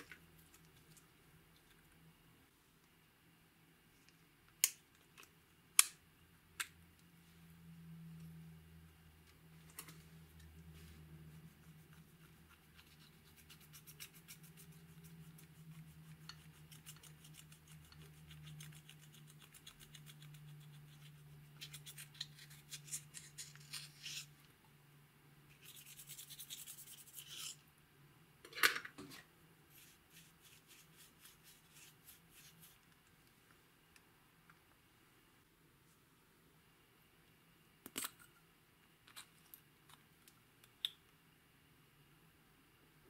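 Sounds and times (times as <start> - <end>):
tool scraping eyeshadow powder: 12.0 - 24.3.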